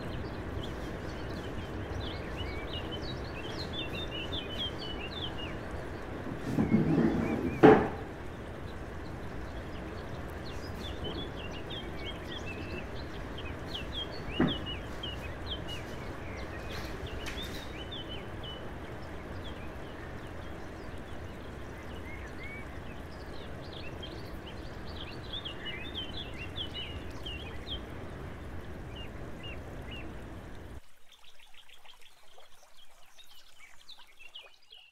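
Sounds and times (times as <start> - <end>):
small birds chirping: 0.0 - 34.9
water noise: 0.0 - 34.9
knock: 6.5 - 8.1, 14.4 - 14.7.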